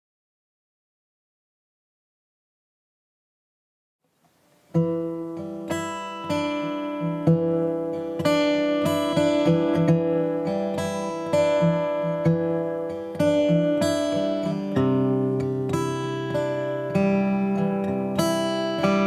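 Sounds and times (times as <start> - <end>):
strummed acoustic guitar: 4.4 - 19.0.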